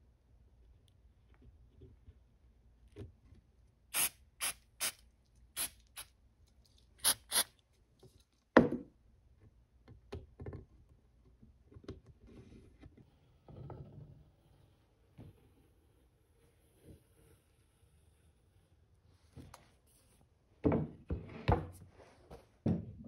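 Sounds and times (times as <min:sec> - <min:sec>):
aerosol spray hissing bursts: 0:04.0 - 0:05.0, 0:07.0 - 0:07.5.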